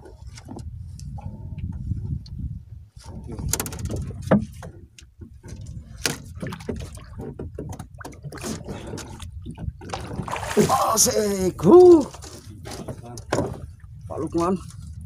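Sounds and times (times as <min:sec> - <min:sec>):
knocks and scrapes on boat hull: 0:00.0 - 0:02.3, 0:03.0 - 0:10.5, 0:12.0 - 0:13.9.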